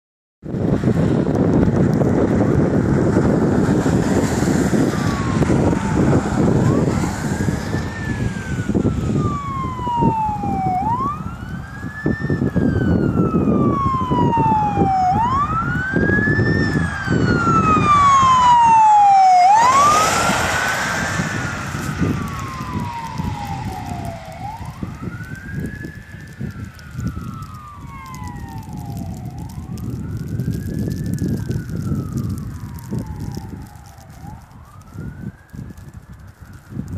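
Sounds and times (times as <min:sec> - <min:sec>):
traffic and tyre noise: 0:00.4 - 0:36.9
ambulance siren wailing: 0:02.5 - 0:36.9.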